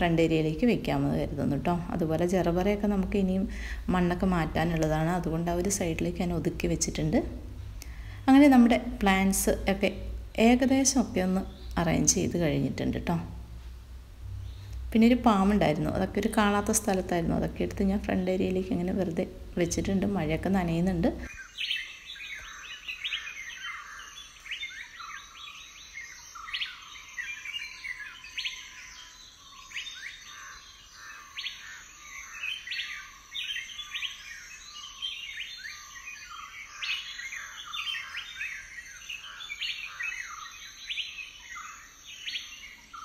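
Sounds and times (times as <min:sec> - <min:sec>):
faint high hum: 0:00.0 - 0:21.4
small birds chirping: 0:00.0 - 0:43.0.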